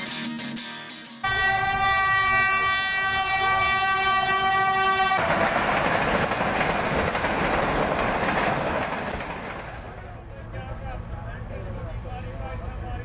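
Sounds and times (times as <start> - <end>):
locomotive horn blast: 1.2 - 5.5
train rushing noise: 1.3 - 13.0.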